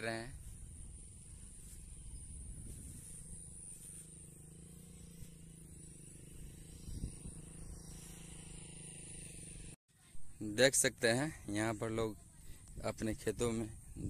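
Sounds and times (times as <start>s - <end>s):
wind rumble on microphone: 0.0s - 8.7s, 11.9s - 14.0s
high hiss: 1.5s - 9.8s.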